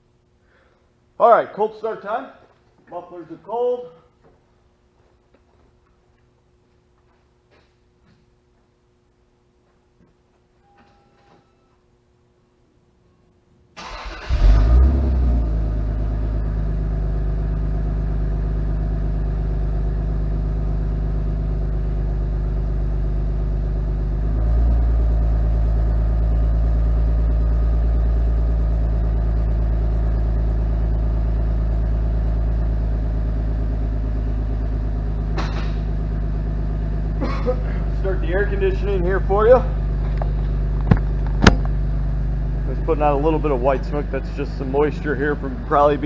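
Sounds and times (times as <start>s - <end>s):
car engine idling: 13.8s - 46.0s.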